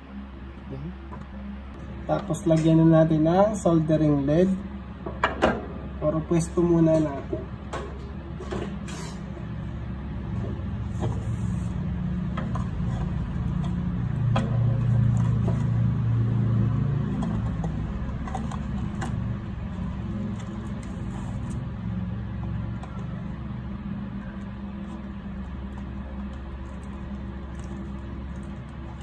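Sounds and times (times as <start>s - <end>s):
low steady rumble: 0.0s - 29.0s.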